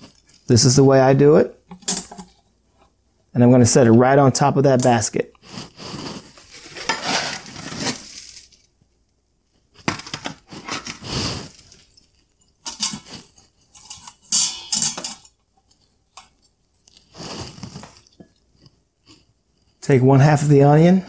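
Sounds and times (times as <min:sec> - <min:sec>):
metal clinks and scrapes: 0:10.6 - 0:16.5.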